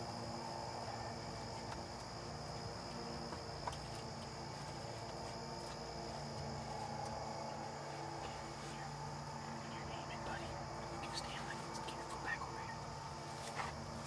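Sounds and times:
crickets trilling: 0:00.0 - 0:14.0.

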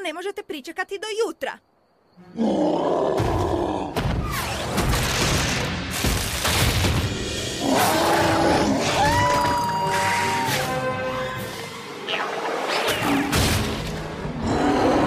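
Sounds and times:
dramatic music: 0:05.6 - 0:15.0.

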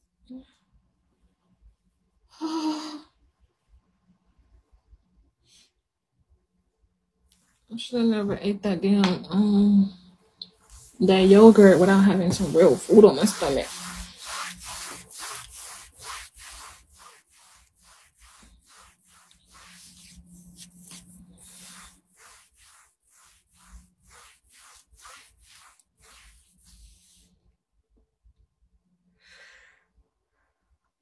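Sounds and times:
rubbing against microphone: 0:10.5 - 0:27.3.

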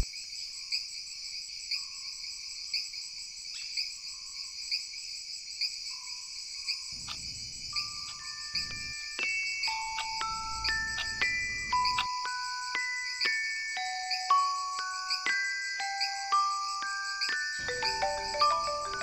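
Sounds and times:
crickets chirping: 0:00.0 - 0:19.0
high chime note: 0:17.6 - 0:19.0.

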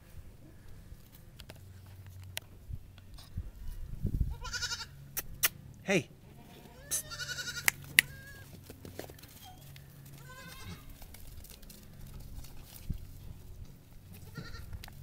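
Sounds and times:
low steady hum: 0:00.0 - 0:15.0
livestock bleating: 0:04.3 - 0:05.0, 0:06.2 - 0:08.5, 0:10.1 - 0:10.9, 0:14.1 - 0:14.7.

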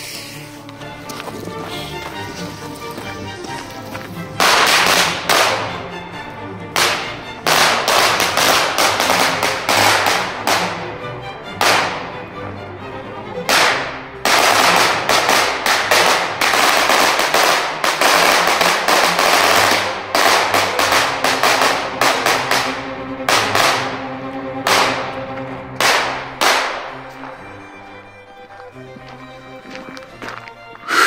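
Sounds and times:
firecrackers banging: 0:02.3 - 0:06.1, 0:06.7 - 0:12.2, 0:13.4 - 0:27.6.

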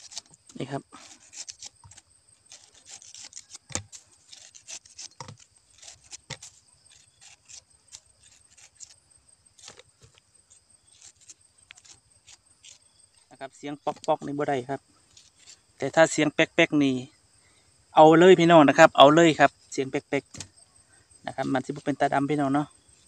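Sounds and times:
knife slicing pineapple: 0:00.0 - 0:13.0.

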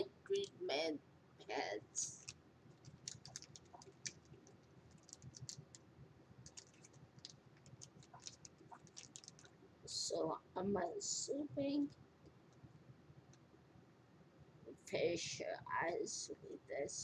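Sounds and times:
packaging clicks and taps: 0:02.2 - 0:04.3.

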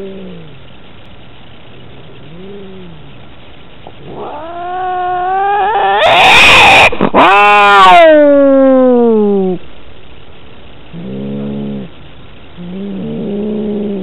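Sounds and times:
cats growling: 0:00.0 - 0:00.7, 0:01.8 - 0:03.2, 0:03.9 - 0:09.6, 0:10.9 - 0:12.0, 0:12.6 - 0:14.0
cat yowling and screaming: 0:04.1 - 0:09.6.

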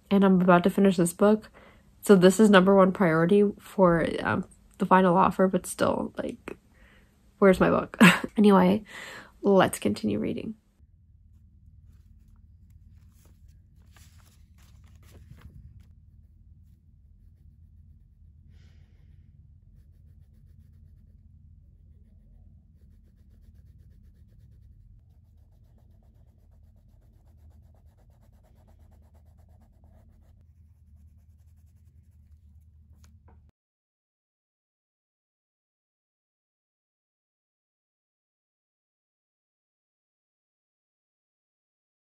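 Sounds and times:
steady low hum: 0:00.0 - 0:33.5
paper pages flipping: 0:11.8 - 0:16.2, 0:32.2 - 0:33.3
marker scratching on paper: 0:21.8 - 0:33.2.

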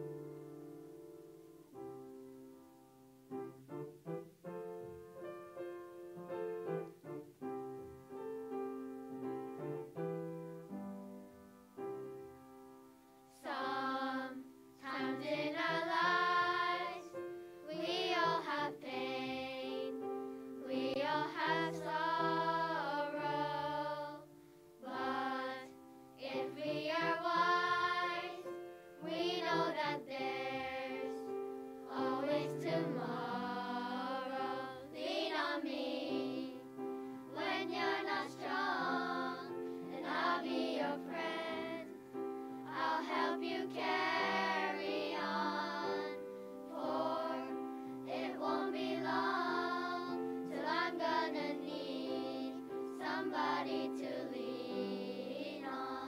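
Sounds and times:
piano accompaniment: 0:00.0 - 0:56.0
children's choir singing: 0:13.3 - 0:42.0, 0:42.6 - 0:56.0.

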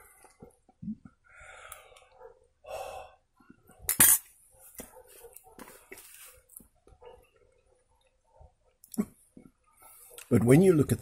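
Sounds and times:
man breathing and chewing: 0:00.0 - 0:03.8.

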